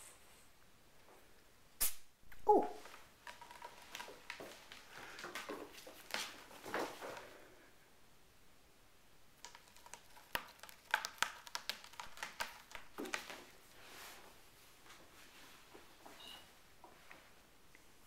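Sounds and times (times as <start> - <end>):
soft rustling: 2.8 - 7.8, 9.5 - 18.0
paws and claws tapping on boards: 9.4 - 13.4.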